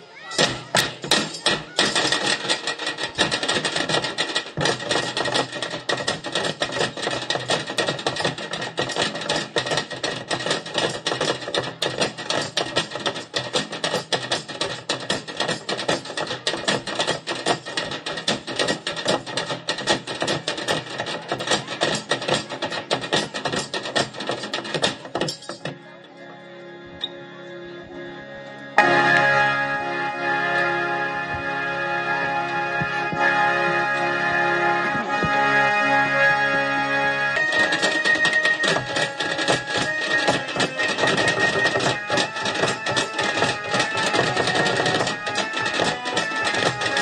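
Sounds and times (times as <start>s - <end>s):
bucket drumming with sticks: 0.2s - 25.8s, 37.4s - 47.0s.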